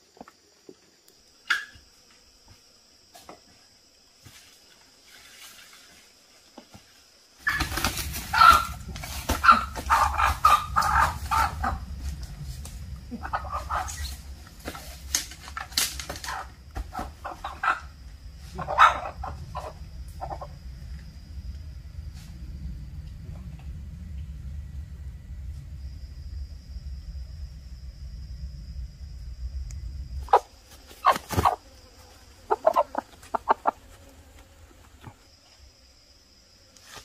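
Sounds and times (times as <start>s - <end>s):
chickens clucking and squawking: 7.4s - 12.0s, 13.1s - 14.1s, 16.2s - 20.6s, 30.2s - 31.6s, 32.4s - 33.9s
wings flapping: 7.4s - 17.8s, 30.2s - 31.6s
steady low rumble: 8.7s - 15.1s, 19.1s - 30.7s.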